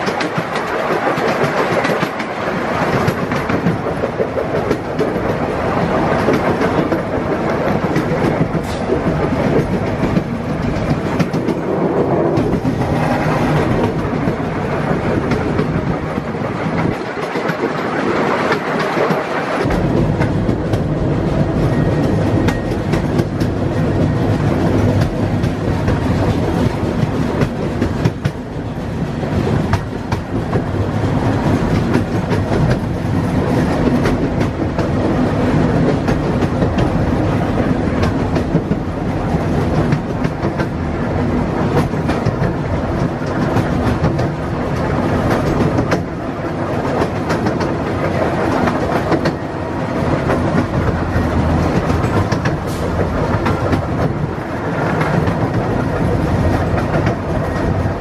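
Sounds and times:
wheels clicking over rail joints: 0.0s - 28.7s, 29.3s - 58.0s
train wheels rumbling on rails: 0.0s - 58.0s.

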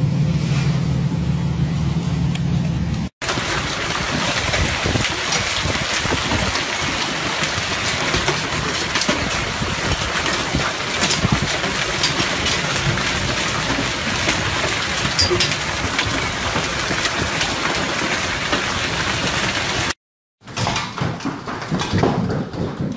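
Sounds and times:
low hum: 0.0s - 3.1s
hail and rain hissing: 3.2s - 20.0s
hailstones striking: 3.2s - 22.9s.

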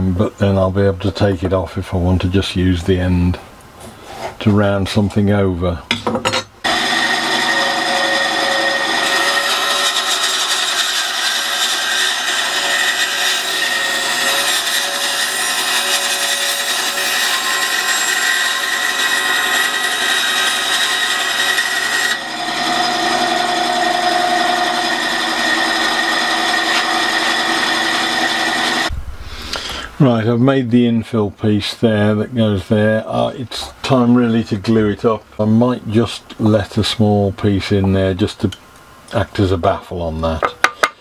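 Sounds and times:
bandsaw cutting wood: 6.6s - 28.9s.

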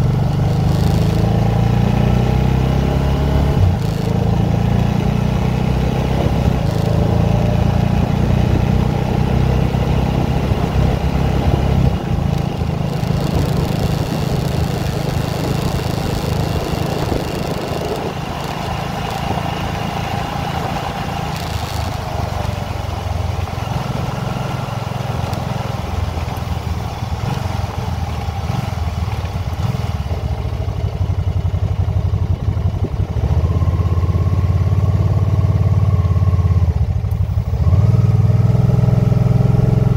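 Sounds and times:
motorcycle engine running: 0.0s - 39.9s
wind and road noise: 0.0s - 39.9s.

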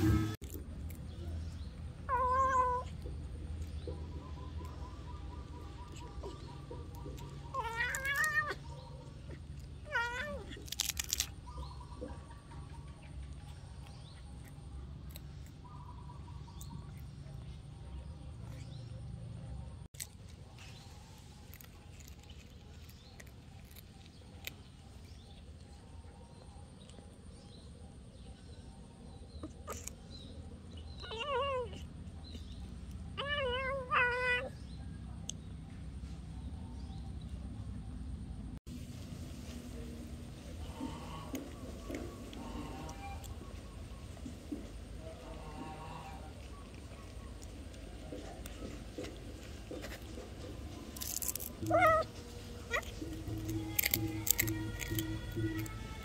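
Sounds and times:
cat meowing: 2.1s - 3.0s, 7.5s - 8.7s, 9.8s - 10.6s, 51.6s - 56.0s.

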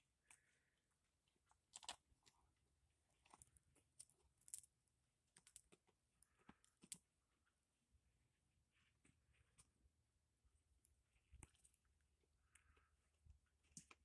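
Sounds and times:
faint clicks and taps: 10.8s - 14.0s.

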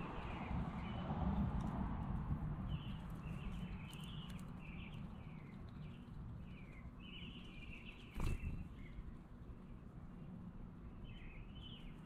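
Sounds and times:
low background rumble: 0.0s - 12.0s
songbird chirping: 2.7s - 12.0s.

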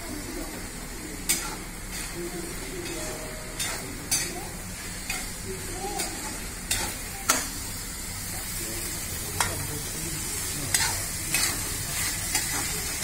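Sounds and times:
potatoes sizzling in a pan: 0.0s - 13.0s
metal spatula clinking on a pan: 3.6s - 4.3s.

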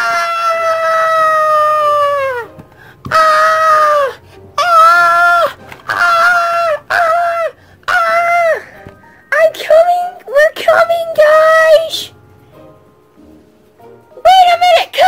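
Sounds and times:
person screaming: 0.0s - 8.7s.

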